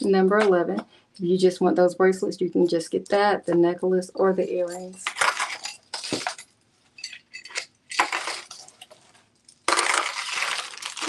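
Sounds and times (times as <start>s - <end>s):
jewelry clinking and rattling: 4.6s - 8.9s
packaging crinkling: 5.0s - 6.4s, 7.9s - 11.0s.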